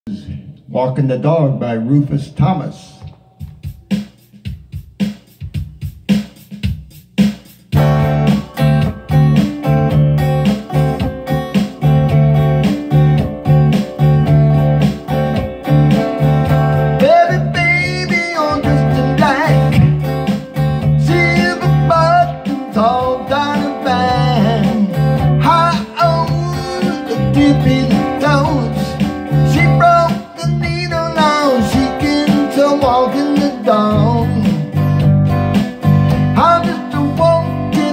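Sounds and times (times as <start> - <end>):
electric guitar blues riff: 7.8 - 37.9
man singing: 16.9 - 20.0, 20.8 - 34.9, 36.3 - 37.9.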